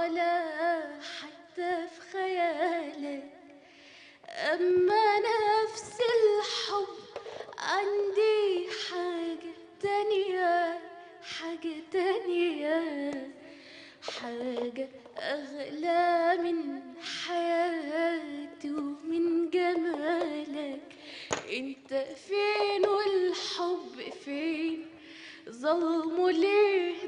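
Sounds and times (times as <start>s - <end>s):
woman singing unaccompanied: 0.0s - 3.5s, 4.2s - 27.0s
breaths between phrases: 13.4s - 14.2s.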